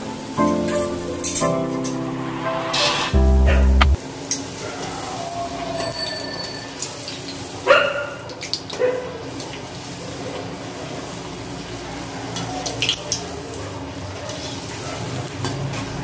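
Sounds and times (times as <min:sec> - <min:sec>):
sound effect music burst: 0:00.0 - 0:04.1
metal spoon ringing against pan: 0:05.8 - 0:07.1.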